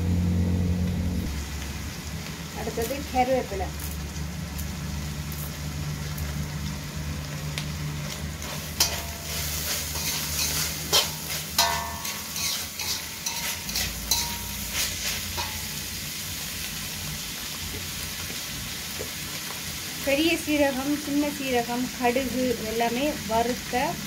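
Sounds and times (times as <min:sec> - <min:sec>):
low hum: 0:00.0 - 0:01.4
meat sizzling in oil: 0:01.3 - 0:24.0
metal spatula scraping pan: 0:08.4 - 0:15.9.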